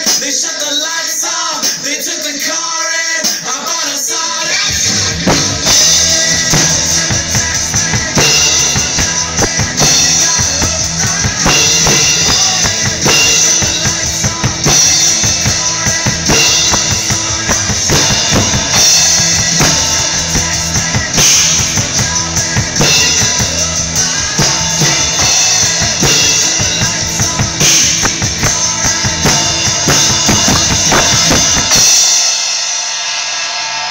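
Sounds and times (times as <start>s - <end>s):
rock drum kit played hard: 0.0s - 33.9s
rock song guitars and bass: 4.5s - 32.6s.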